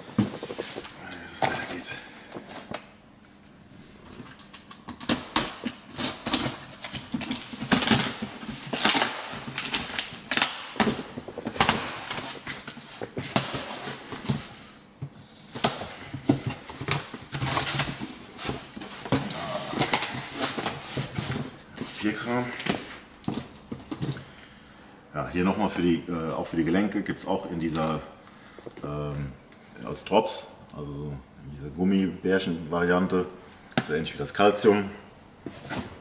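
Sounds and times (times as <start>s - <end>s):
hands rummaging in cardboard box: 0.0s - 1.8s, 15.5s - 24.2s.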